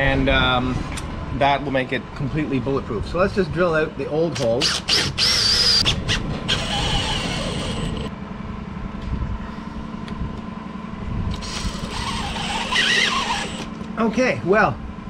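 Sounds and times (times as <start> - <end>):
cordless drill boring wood: 4.4 - 8.1, 11.3 - 13.8.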